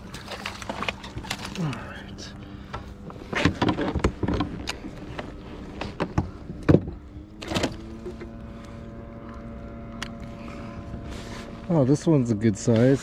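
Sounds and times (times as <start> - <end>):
fish flopping: 0.0 - 1.9
steady low hum: 0.0 - 13.0.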